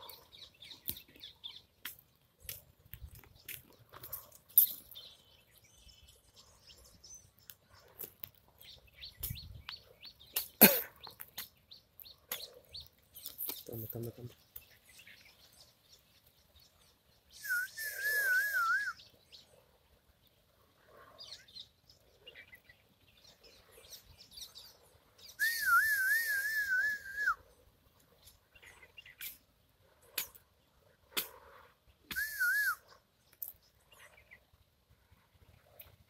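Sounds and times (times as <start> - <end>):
person whistling bird-like call: 17.3 - 19.0, 25.2 - 27.4, 32.1 - 32.9.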